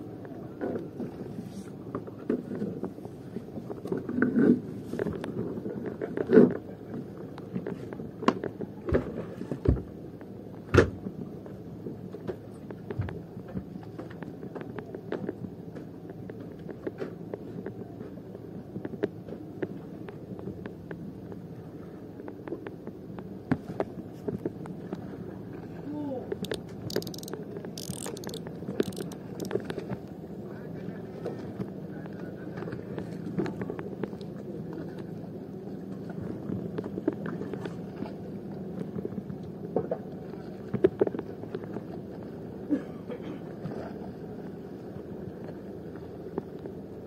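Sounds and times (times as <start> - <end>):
boat engine humming: 0.0 - 47.0
light clicks and knocks: 26.3 - 30.1.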